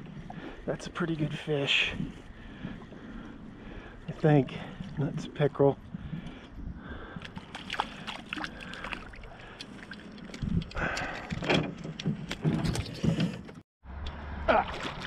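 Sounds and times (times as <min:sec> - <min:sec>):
knocks and rattles on canoe hull: 0:10.2 - 0:13.6.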